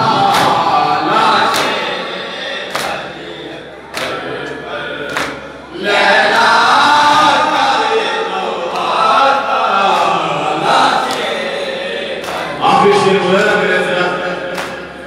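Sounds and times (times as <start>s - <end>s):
men chanting a lament: 0.0s - 15.0s.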